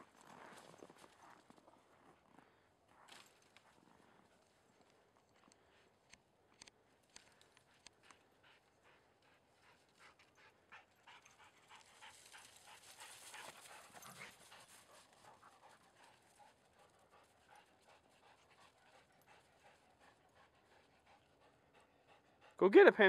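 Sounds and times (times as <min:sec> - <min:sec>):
paws crunching on snow: 0:00.0 - 0:05.9, 0:11.0 - 0:21.6
dog panting: 0:03.3 - 0:23.0.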